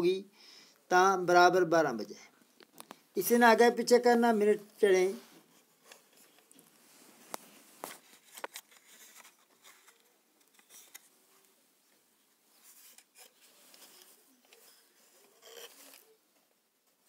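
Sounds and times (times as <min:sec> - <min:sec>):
plastic objects clicking and rustling: 0:07.3 - 0:11.1.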